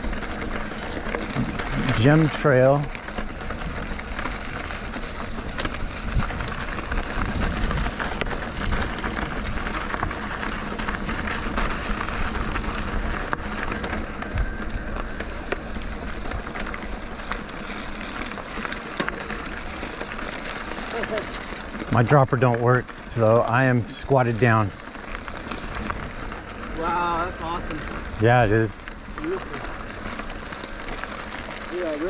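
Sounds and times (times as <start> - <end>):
bike rattling and knocking: 0.0 - 32.0
tyres crunching on rocky ground: 0.0 - 32.0
wind buffeting microphone: 3.3 - 16.2.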